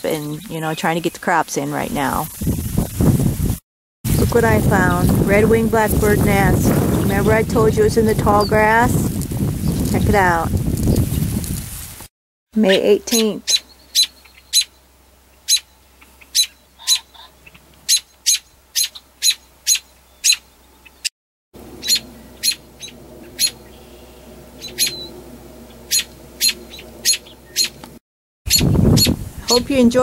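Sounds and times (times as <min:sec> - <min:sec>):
robin alarm calls: 0:12.6 - 0:14.8, 0:15.4 - 0:21.0, 0:21.8 - 0:27.8, 0:28.5 - 0:29.6.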